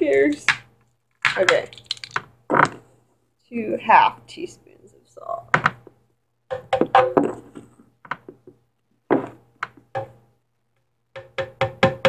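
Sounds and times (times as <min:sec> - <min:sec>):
plastic spoon knocking on glass jars: 0:06.5 - 0:07.4, 0:11.2 - 0:12.0.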